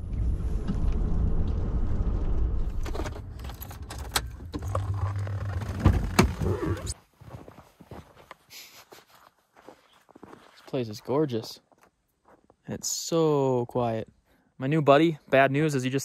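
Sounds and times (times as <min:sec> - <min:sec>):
clicks and rattles from dash: 0:02.8 - 0:06.6.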